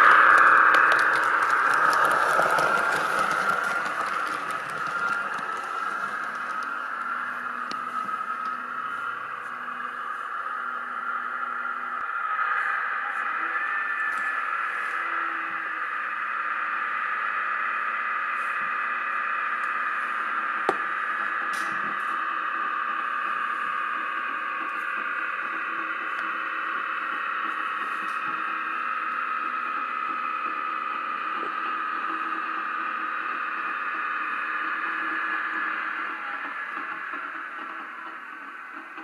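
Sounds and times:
tinny diesel engine drone: 0.0 - 24.6.

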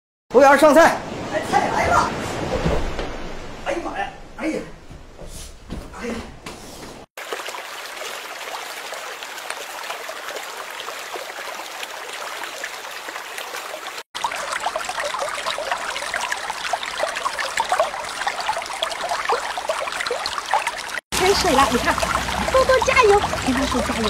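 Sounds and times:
water trickling and burbling: 7.2 - 24.0.

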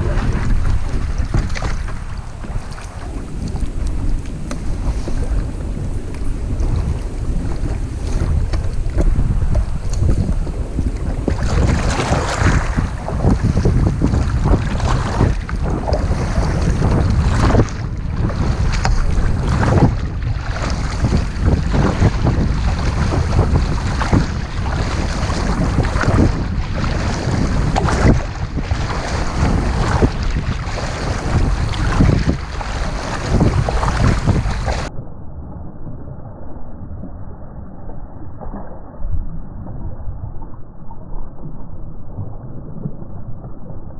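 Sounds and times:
water splashing against hull: 0.0 - 34.9
wind buffeting microphone: 0.0 - 34.9.

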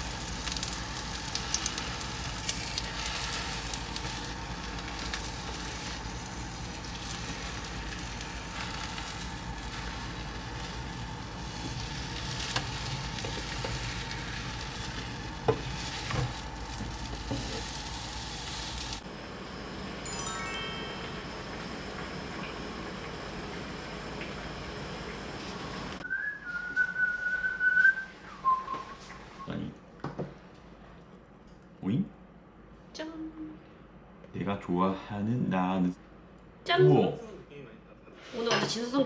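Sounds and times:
food sizzling in frying pan: 0.0 - 19.3
brief ringing tone: 20.1 - 21.7.

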